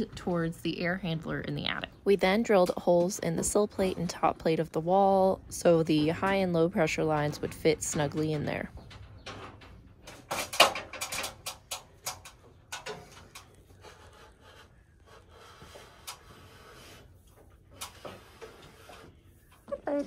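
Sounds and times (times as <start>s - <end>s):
copper tubing knocking and clicking: 6.2s - 14.0s.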